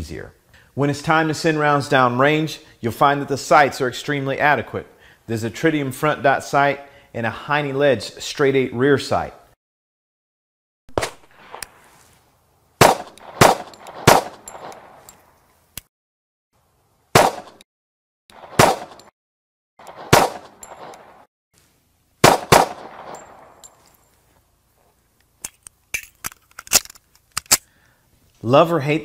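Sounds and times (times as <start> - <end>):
pistol shots echoing: 12.8 - 15.0, 17.2 - 17.6, 18.3 - 19.1, 19.8 - 21.3, 22.2 - 23.8.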